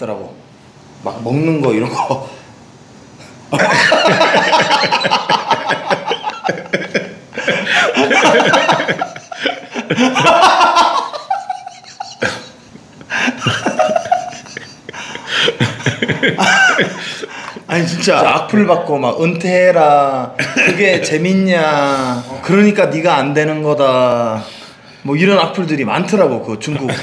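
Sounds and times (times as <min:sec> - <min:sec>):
men laughing hard: 0:03.5 - 0:18.2, 0:20.4 - 0:21.3.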